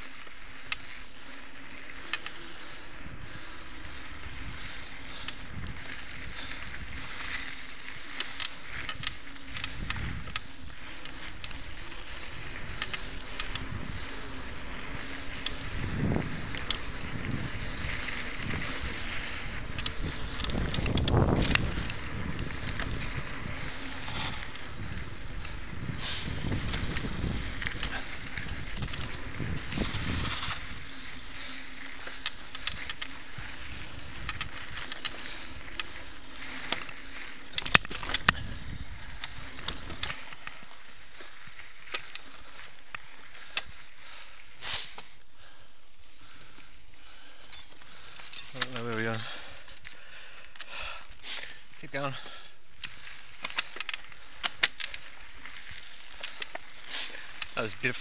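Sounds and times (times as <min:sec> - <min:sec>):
bike clicking and rattling: 0:00.0 - 0:58.0
bike tyres on dirt: 0:00.0 - 0:58.0
wind on microphone: 0:09.5 - 0:10.4, 0:12.2 - 0:30.9, 0:37.8 - 0:40.2.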